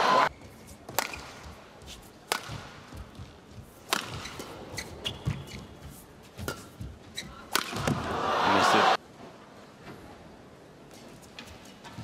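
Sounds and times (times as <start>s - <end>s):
rackets hitting shuttlecock: 0.9s - 1.6s, 2.2s - 5.5s, 7.5s - 8.2s.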